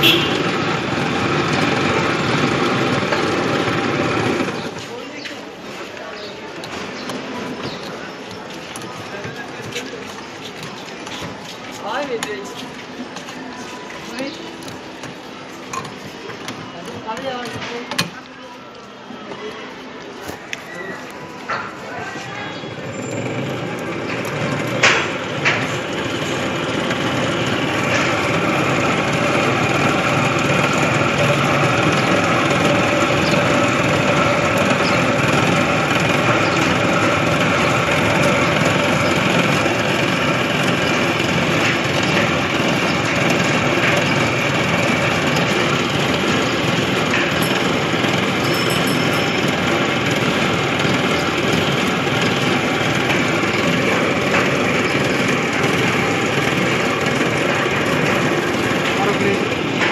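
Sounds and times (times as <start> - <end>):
machine motor humming: 22.7 - 59.9.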